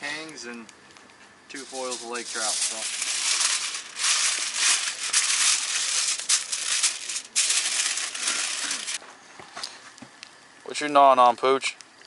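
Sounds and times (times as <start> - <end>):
aluminium foil crinkling: 1.5 - 9.0.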